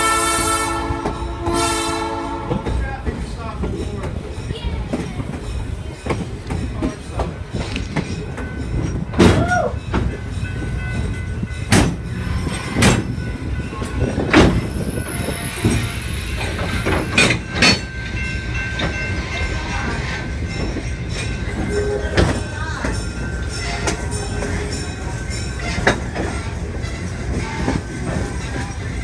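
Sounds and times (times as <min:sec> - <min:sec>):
train wheels rumbling on rail: 0:00.0 - 0:29.0
metal clanks from couplings: 0:15.6 - 0:19.2, 0:23.8 - 0:26.6.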